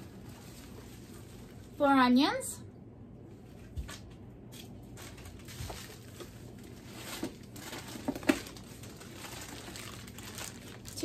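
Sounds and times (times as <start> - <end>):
plastic bags rustling: 0.0 - 2.4, 3.6 - 11.0.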